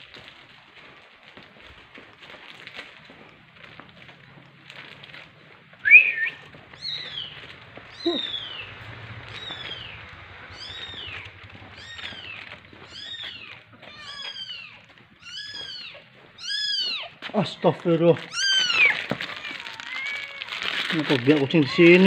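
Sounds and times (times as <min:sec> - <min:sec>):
kitten mewing: 0:07.9 - 0:08.6, 0:10.5 - 0:17.2, 0:18.3 - 0:20.6.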